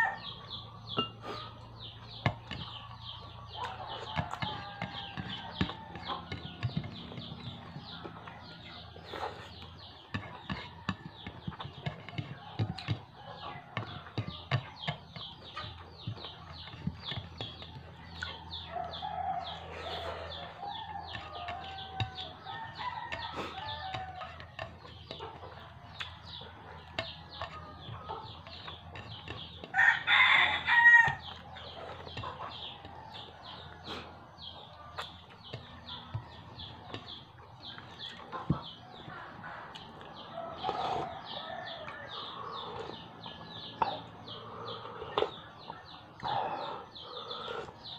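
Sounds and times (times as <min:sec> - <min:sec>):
rooster crowing: 0:00.0 - 0:00.2
chickens clucking: 0:00.0 - 0:47.9.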